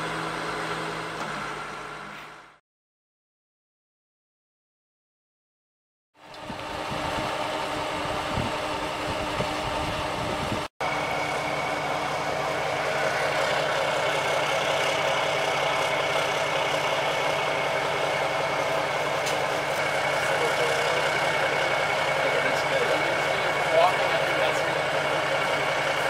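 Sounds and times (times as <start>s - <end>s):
diesel truck engine idling: 6.2s - 26.0s
thin steady whine: 6.2s - 26.0s.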